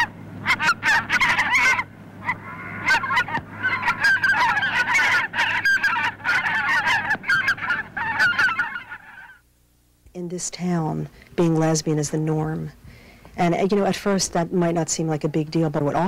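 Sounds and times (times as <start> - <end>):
flock of birds calling: 0.0 - 9.4.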